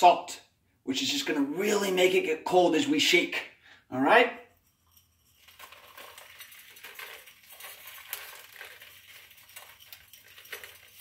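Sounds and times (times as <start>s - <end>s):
salt sprinkled onto ice: 4.8s - 11.0s.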